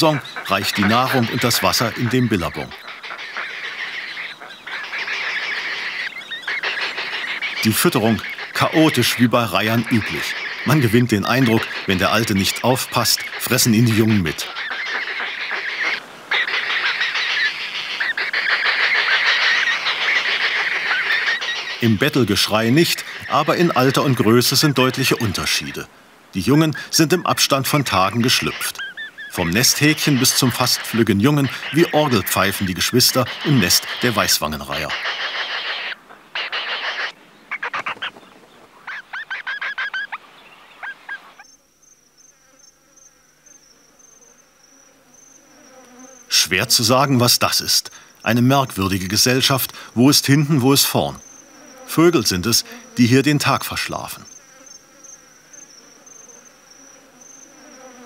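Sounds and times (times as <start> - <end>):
heron chicks begging calls: 0.0 - 25.8, 26.4 - 41.4
high-pitched insect sound: 0.1 - 25.8, 26.5 - 38.0, 38.9 - 58.0.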